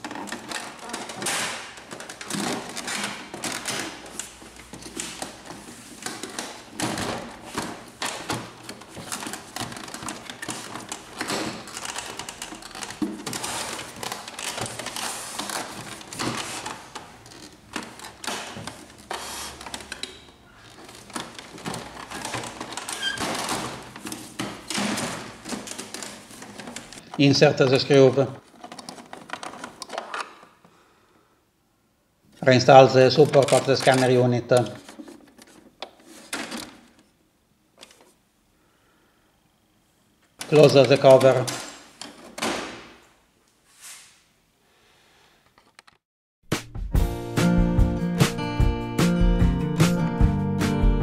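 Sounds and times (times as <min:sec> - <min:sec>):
plastic clicks and rattles: 0:00.0 - 0:27.2, 0:28.4 - 0:30.6, 0:33.1 - 0:37.1.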